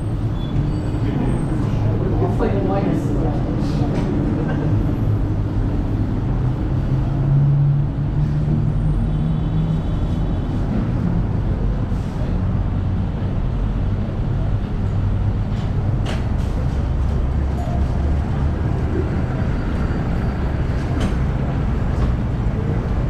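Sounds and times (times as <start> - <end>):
city traffic rumble: 0.0 - 23.0.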